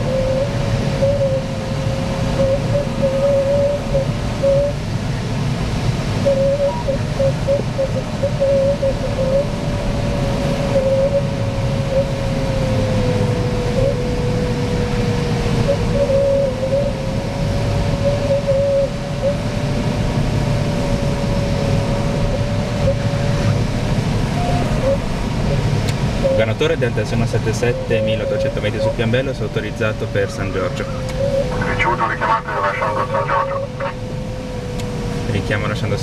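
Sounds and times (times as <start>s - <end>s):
airflow rushing in cockpit: 0.0s - 36.0s.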